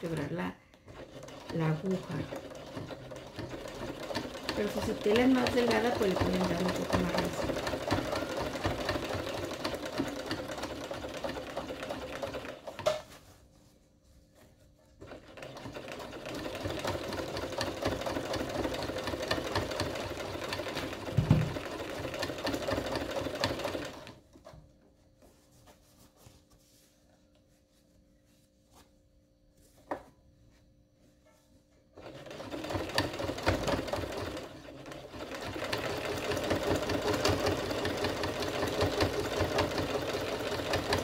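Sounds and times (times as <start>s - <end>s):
sewing machine stitching: 0.0s - 13.0s, 15.0s - 24.2s, 32.0s - 41.0s.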